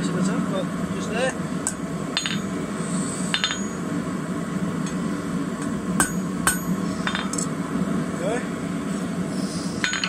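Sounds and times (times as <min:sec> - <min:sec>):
steady low hum: 0:00.0 - 0:10.0
hammer striking anvil: 0:01.7 - 0:02.5, 0:03.4 - 0:03.8, 0:06.0 - 0:07.4.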